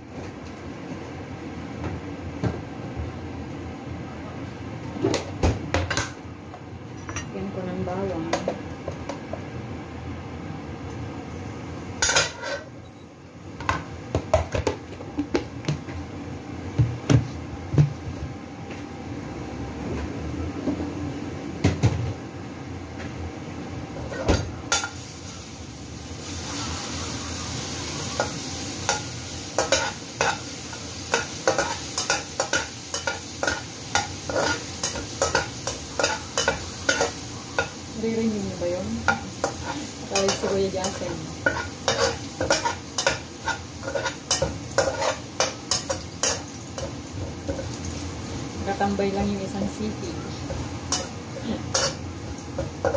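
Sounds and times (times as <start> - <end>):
metal spatula scraping wok: 12.0 - 12.7, 28.1 - 37.2, 39.1 - 46.4
garlic sizzling in pan: 23.9 - 52.9.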